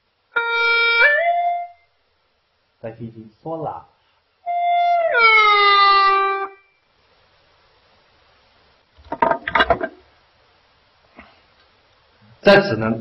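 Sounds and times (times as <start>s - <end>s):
gourd flute gliding note: 4.5s - 6.7s.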